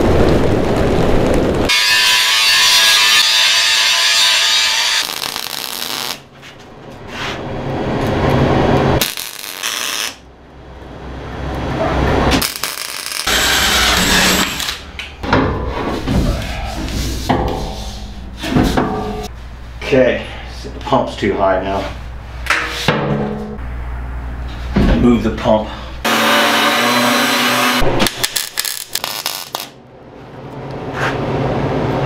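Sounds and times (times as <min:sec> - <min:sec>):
welder crackling: 0:00.0 - 0:06.3, 0:08.0 - 0:10.3, 0:12.3 - 0:15.1, 0:27.1 - 0:29.8
angle grinder cutting steel: 0:01.7 - 0:06.2, 0:12.4 - 0:14.9, 0:26.1 - 0:27.8.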